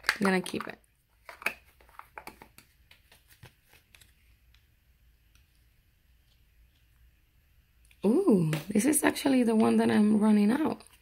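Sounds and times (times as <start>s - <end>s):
jars and sachets clicking and crinkling: 0.0s - 4.6s.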